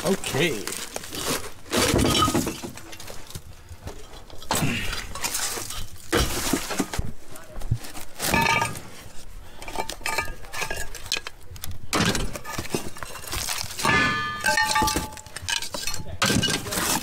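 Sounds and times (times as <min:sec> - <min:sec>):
metal parts clinking and knocking: 0:08.3 - 0:08.9, 0:09.6 - 0:17.0
ringing metal clang: 0:13.8 - 0:16.7.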